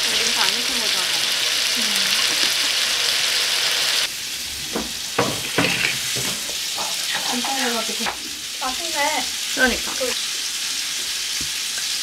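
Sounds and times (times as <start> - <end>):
background hiss: 1.6 - 12.0
forks and dishes clinking: 4.7 - 7.7.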